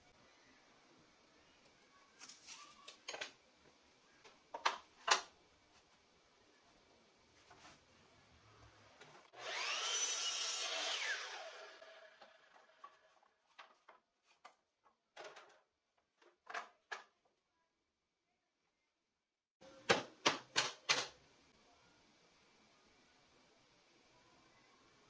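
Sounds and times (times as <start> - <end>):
miter saw whining: 9.3 - 12.8.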